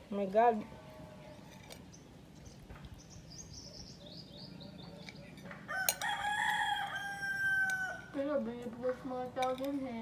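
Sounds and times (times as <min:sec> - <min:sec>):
bird chirping: 0:01.2 - 0:05.8.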